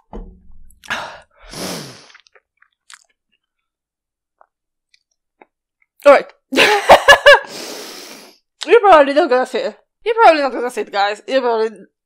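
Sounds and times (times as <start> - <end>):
wet chewing clicks and smacks: 2.1 - 3.4.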